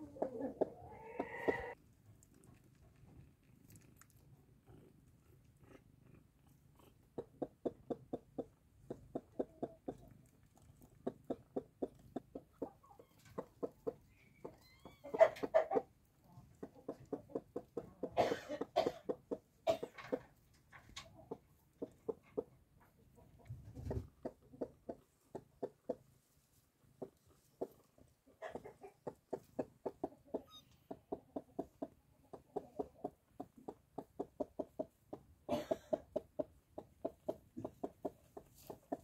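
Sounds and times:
hen clucking: 0:00.0 - 0:01.8, 0:06.8 - 0:26.2, 0:26.8 - 0:39.0.

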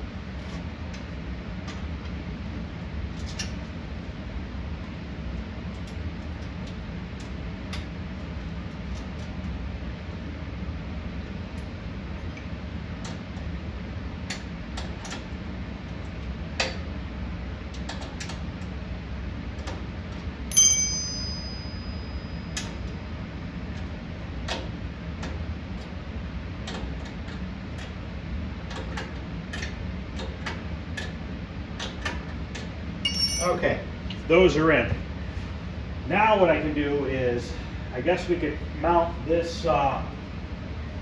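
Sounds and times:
ringing metal clink: 0:20.5 - 0:22.7, 0:33.0 - 0:33.8
low hum: 0:20.5 - 0:23.5, 0:33.0 - 0:36.0.

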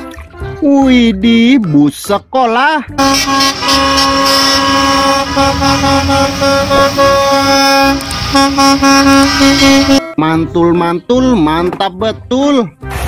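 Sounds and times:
traffic rumble: 0:03.0 - 0:10.0
bus horns honking: 0:03.0 - 0:10.4.

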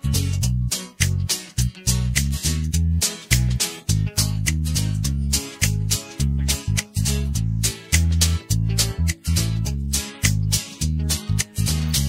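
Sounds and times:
instrumental backing track: 0:00.0 - 0:12.0.

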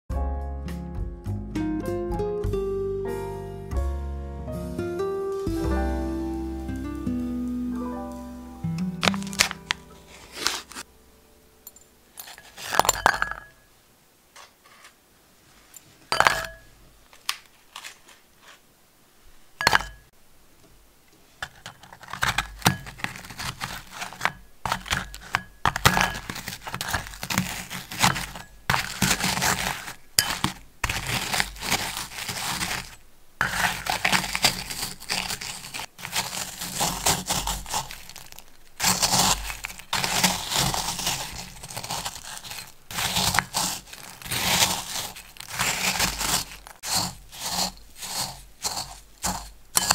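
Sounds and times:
plastic wrapper crinkling and tearing: 0:06.6 - 0:10.9, 0:17.0 - 0:18.6, 0:21.8 - 0:49.9
biscuits crunching: 0:06.8 - 0:10.9, 0:21.4 - 0:49.9
metal clinking on glass: 0:11.6 - 0:13.6, 0:19.6 - 0:20.1.

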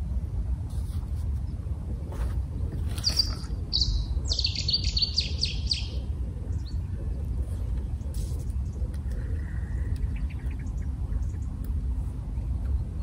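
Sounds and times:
steady low rumble: 0:00.0 - 0:13.0
small bird chirping: 0:02.9 - 0:06.9.

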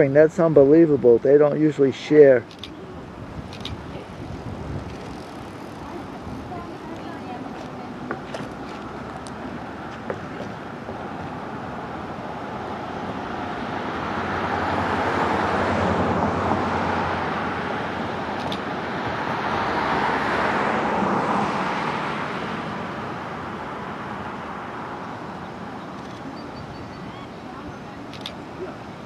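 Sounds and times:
vehicles passing by: 0:00.0 - 0:29.0.

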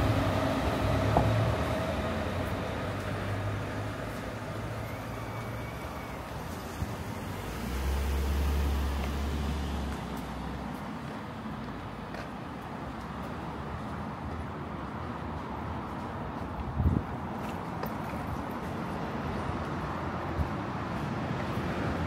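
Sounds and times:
motor vehicle passing: 0:00.0 - 0:11.1
street background: 0:00.0 - 0:22.0.

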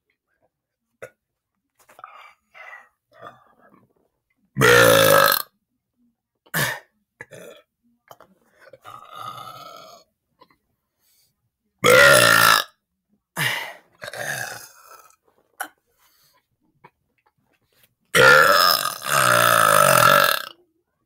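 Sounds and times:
boy burping: 0:04.6 - 0:05.4, 0:08.8 - 0:10.0, 0:11.8 - 0:12.7, 0:13.4 - 0:15.7, 0:18.2 - 0:20.6.

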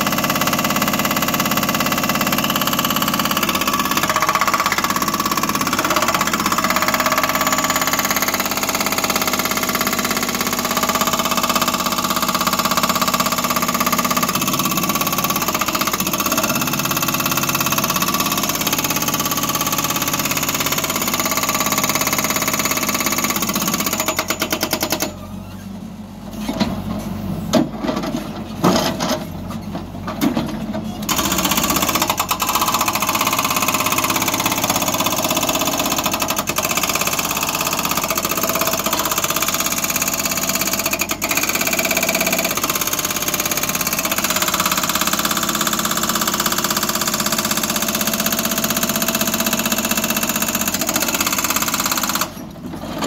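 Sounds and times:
diesel engine running: 0:25.0 - 0:53.0.

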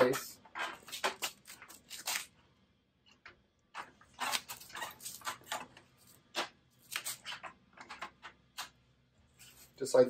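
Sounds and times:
plastic panel clicking and creaking: 0:07.2 - 0:08.7.

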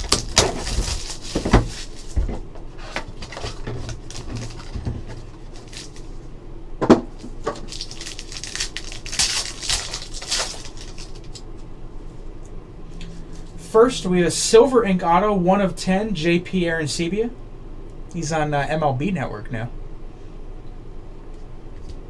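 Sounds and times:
plastic shrink wrap crinkling: 0:00.0 - 0:06.2, 0:07.2 - 0:11.4.

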